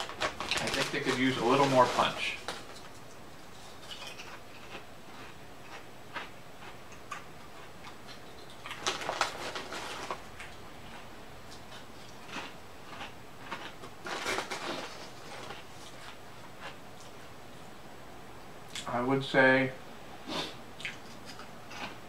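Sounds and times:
foil bag rustling: 0.0 - 4.3, 8.7 - 10.3, 14.0 - 16.2
potato chips crunching: 0.0 - 17.1, 20.8 - 22.0.

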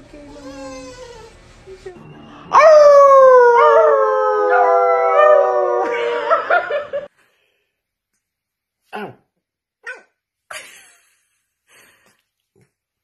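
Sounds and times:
man howling: 2.3 - 6.7
small dogs howling: 2.3 - 6.8
man laughing: 5.9 - 7.1, 10.5 - 11.2.

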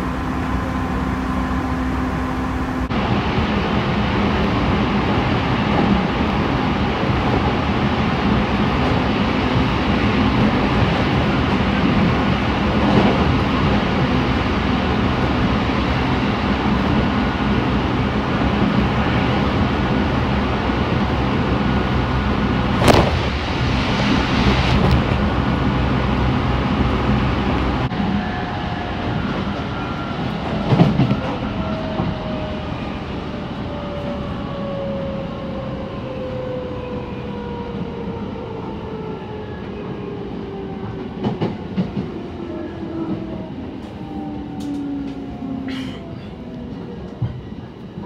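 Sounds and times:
train wheels rumbling on rail: 0.0 - 48.0
loud burst: 22.7 - 25.3.

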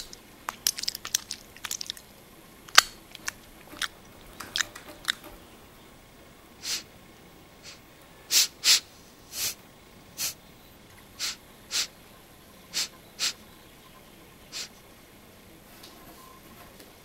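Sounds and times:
person sniffing: 6.6 - 6.9, 7.6 - 9.6, 11.2 - 11.9, 12.7 - 13.4, 14.5 - 14.8.

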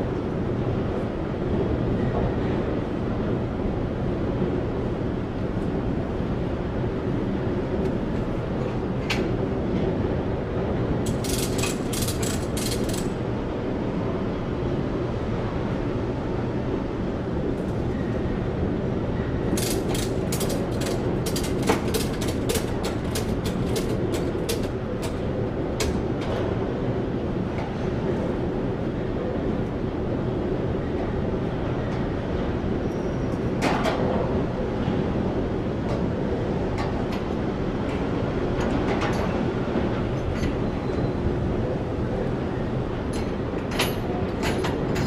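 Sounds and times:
ratchet strap clicking: 11.1 - 13.1, 19.6 - 25.2.

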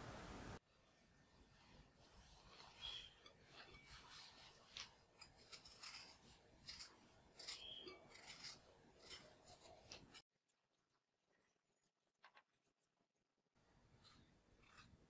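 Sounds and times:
vegetable peeler scraping potato: 2.2 - 10.2, 14.1 - 15.0.

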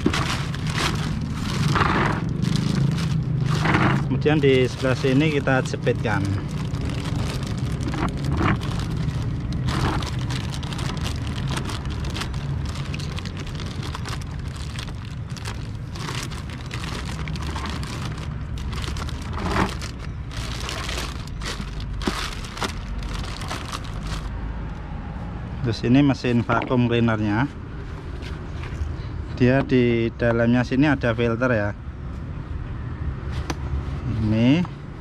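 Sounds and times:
plastic bag crinkling: 0.0 - 24.3
steady low rumble: 0.0 - 24.8.

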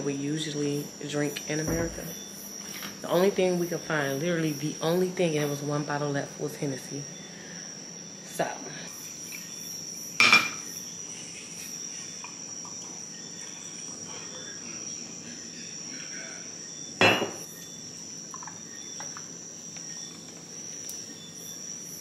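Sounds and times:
night insects chorus: 0.0 - 22.0
glassware knocking on table: 10.2 - 10.6, 17.0 - 17.5.

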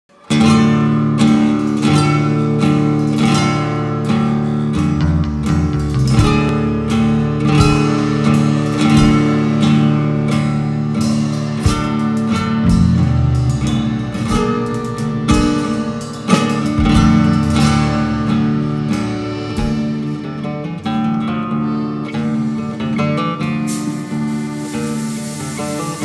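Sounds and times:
acoustic guitar strumming: 0.1 - 26.0
live band music: 11.4 - 21.2
low drum hits: 12.6 - 15.9, 16.6 - 20.3.

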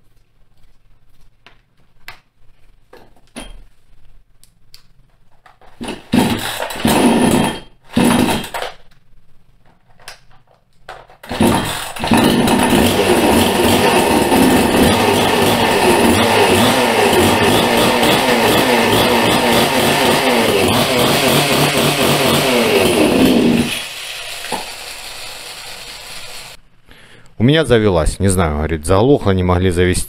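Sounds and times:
chainsaw engine firing and running: 5.8 - 8.6, 11.2 - 26.6.

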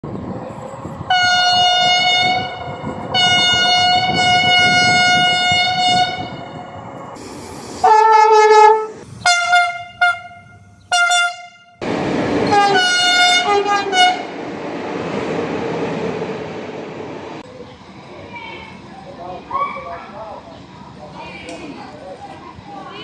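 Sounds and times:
running train rumble: 0.0 - 23.0
train horn blasts: 1.1 - 6.4, 7.8 - 11.8, 12.4 - 14.3
lower train horn blast: 1.1 - 6.6, 7.8 - 11.8, 12.4 - 14.3.

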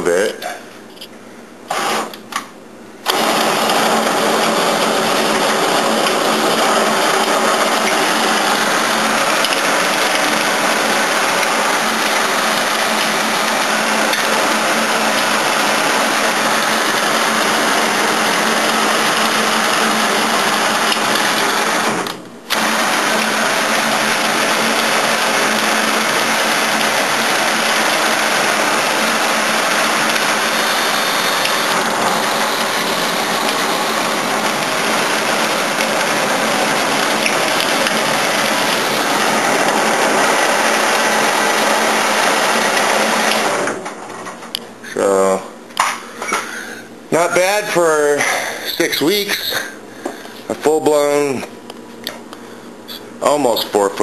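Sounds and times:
cordless drill spinning: 3.1 - 43.8.

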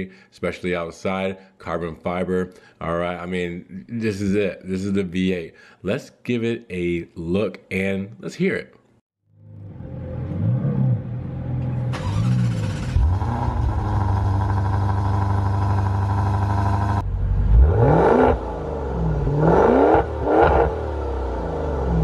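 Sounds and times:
car engine revving: 9.4 - 22.0.

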